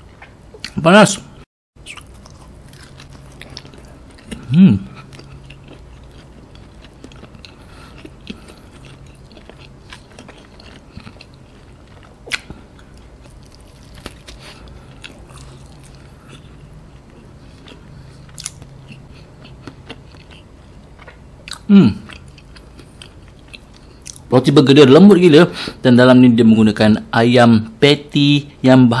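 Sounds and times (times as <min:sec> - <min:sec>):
close-up chewing: 0:01.8 - 0:24.3
person humming mm: 0:04.4 - 0:05.0.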